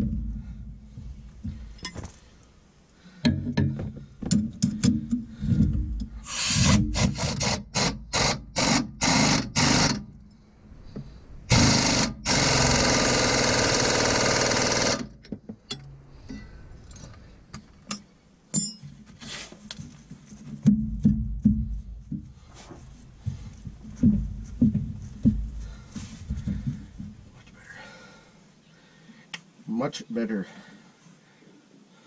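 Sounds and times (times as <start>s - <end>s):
metal knocks: 3.2s - 6.2s
ratchet clicking: 11.5s - 15.2s.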